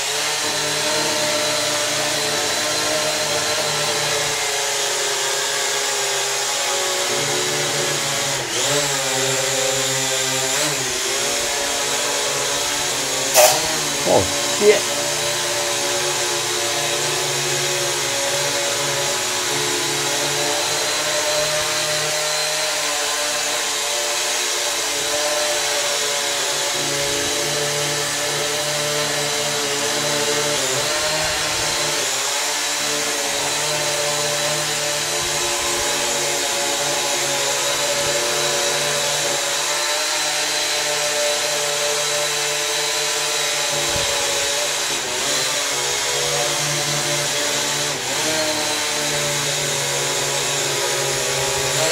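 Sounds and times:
drone propellers whining: 12.5 - 15.1.

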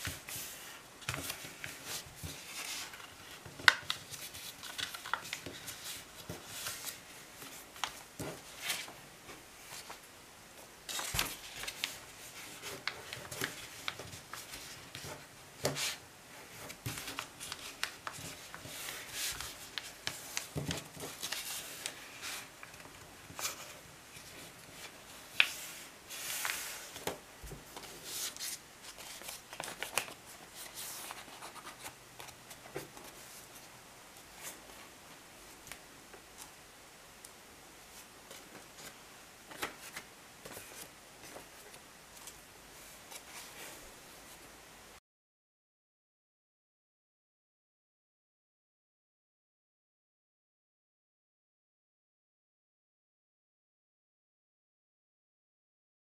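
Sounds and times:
paper rustling and crinkling: 0.0 - 10.1, 10.9 - 34.8, 37.9 - 44.4.

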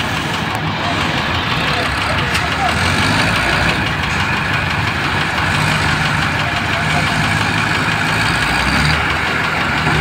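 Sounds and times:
diesel engine idling: 0.0 - 10.0.

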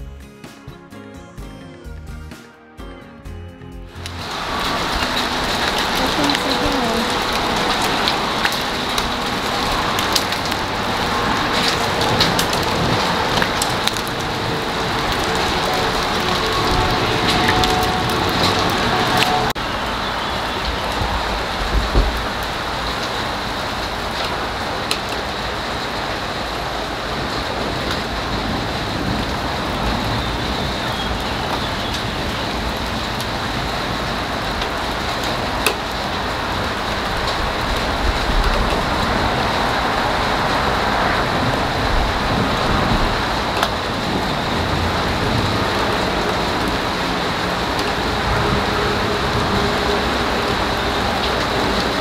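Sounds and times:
steady rain: 3.9 - 52.0
water drip ticks: 4.0 - 16.6.

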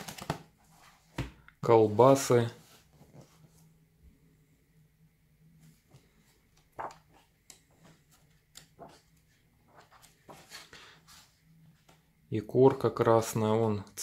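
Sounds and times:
faint low hum: 0.5 - 14.0
book pages rustling: 2.5 - 3.7, 5.6 - 12.0.

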